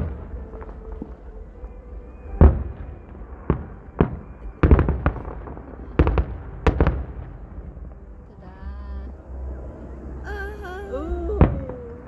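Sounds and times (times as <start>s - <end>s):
fireworks bursting with sharp bangs: 2.1s - 8.6s.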